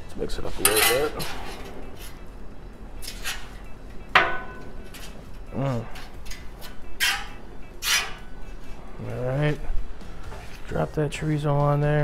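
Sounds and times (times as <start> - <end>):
metal spatula scraping griddle: 0.4 - 2.2, 7.0 - 8.8.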